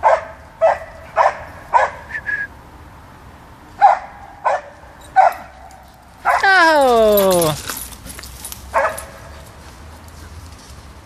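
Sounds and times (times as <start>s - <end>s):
dog barking: 0.0s - 2.1s, 3.8s - 5.5s, 6.2s - 6.4s, 8.7s - 9.2s.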